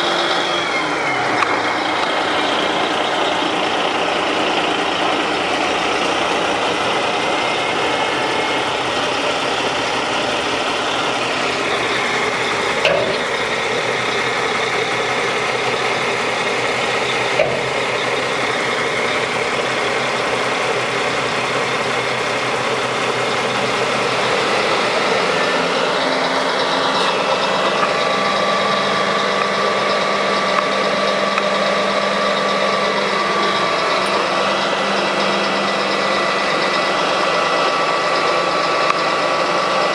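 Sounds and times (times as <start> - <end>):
diesel truck engine idling: 0.0 - 39.9.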